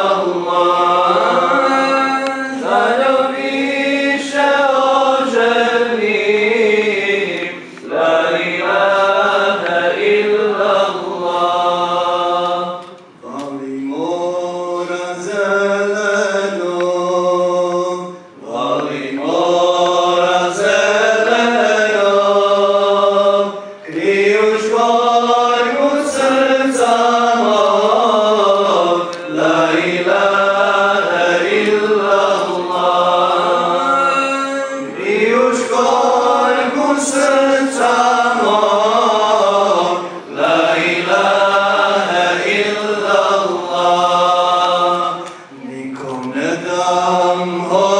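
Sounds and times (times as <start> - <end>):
voices singing a chant: 0.0 - 47.9.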